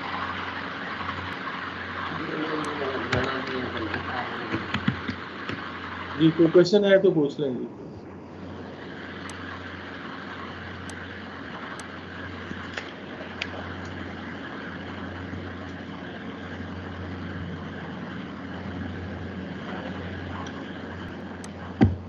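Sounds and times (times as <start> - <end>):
constant low hum: 0.0 - 22.0.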